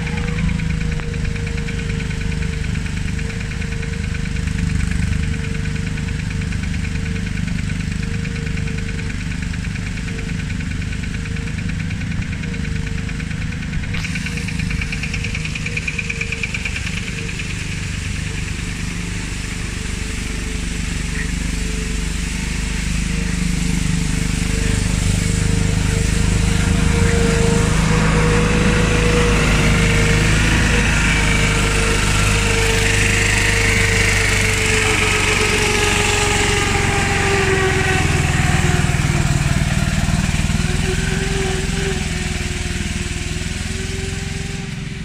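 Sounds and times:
diesel tractor engine running: 0.0s - 45.0s.

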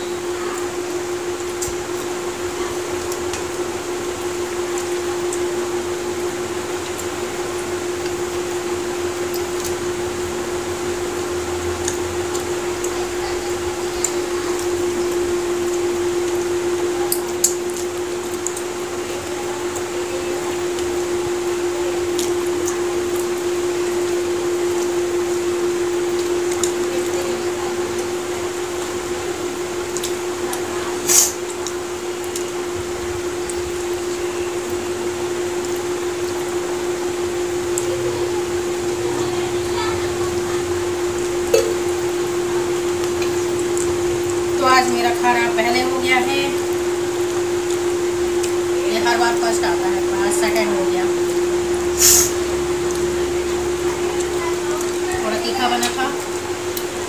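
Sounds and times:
electric fan humming: 0.0s - 57.0s
short hiss: 31.0s - 31.4s, 52.0s - 52.4s.

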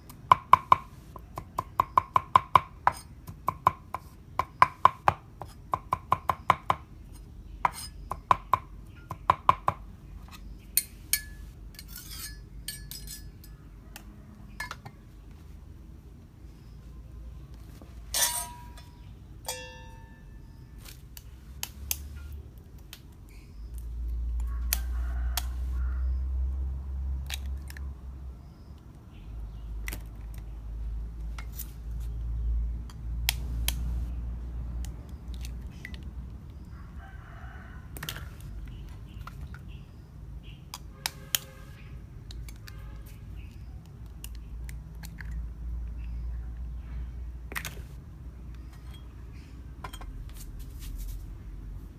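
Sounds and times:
rooster crowing: 24.5s - 26.2s, 36.7s - 38.3s.

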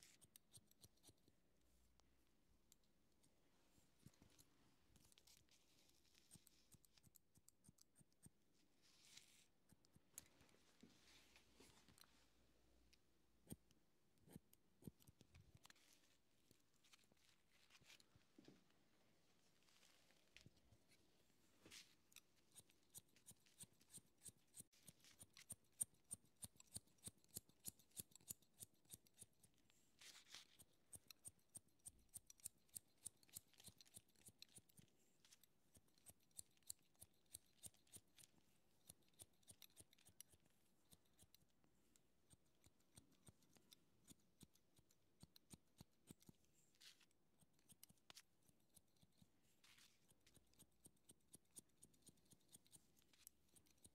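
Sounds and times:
scissors snipping hair: 22.2s - 29.6s, 30.2s - 41.6s, 42.2s - 53.9s.

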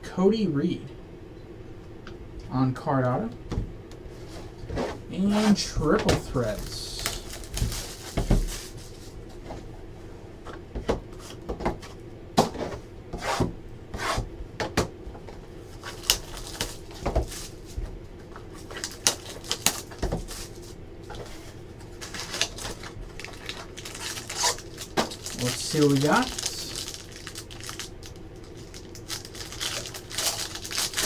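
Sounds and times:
plastic and foil wrapping crinkling: 6.2s - 9.2s, 15.7s - 17.7s, 18.3s - 31.0s.

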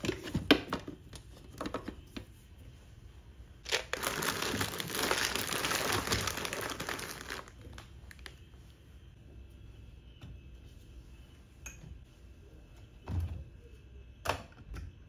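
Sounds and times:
snack packaging crinkling: 3.6s - 8.4s.

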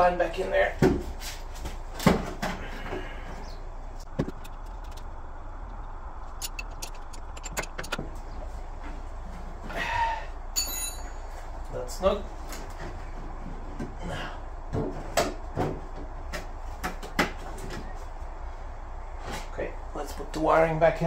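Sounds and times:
steady low rumble: 3.5s - 14.7s
metal fittings and tools clicking: 6.4s - 8.0s.

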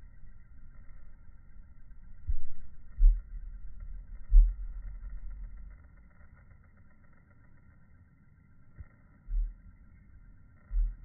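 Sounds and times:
low rumble: 0.0s - 6.3s, 8.7s - 11.0s.

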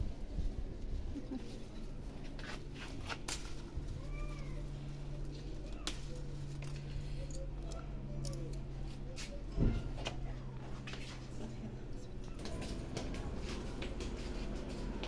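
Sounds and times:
peppers snapping off plants: 3.0s - 3.6s.

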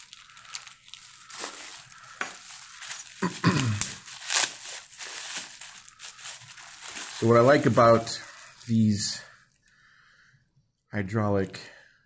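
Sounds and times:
bubble wrap crinkling: 0.0s - 9.3s.

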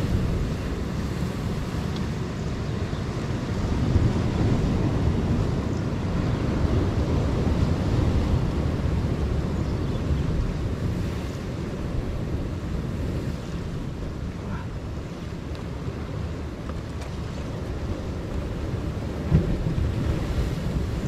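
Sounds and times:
surf washing against rocks: 0.0s - 21.0s
wind rumbling on microphone: 0.0s - 21.0s.

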